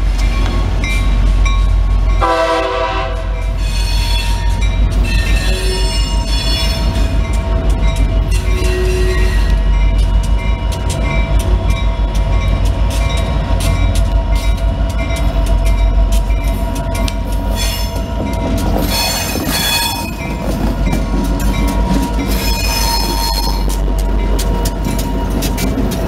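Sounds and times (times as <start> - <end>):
diesel locomotive rumbling: 0.0 - 26.0
train wheels clicking on rails: 0.0 - 26.0
wheel squeal: 18.8 - 20.3, 22.2 - 23.7.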